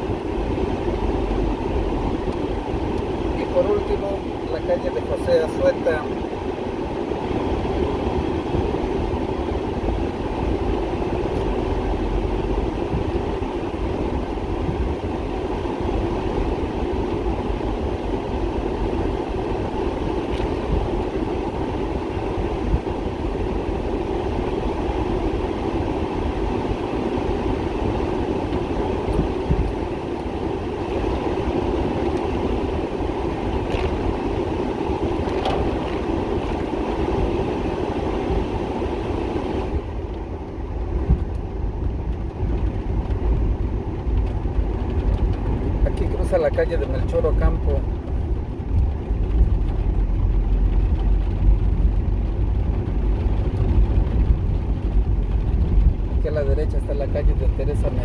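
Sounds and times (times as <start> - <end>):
car driving on wet road: 0.0 - 58.0
rain on road: 27.2 - 37.2, 40.0 - 57.7.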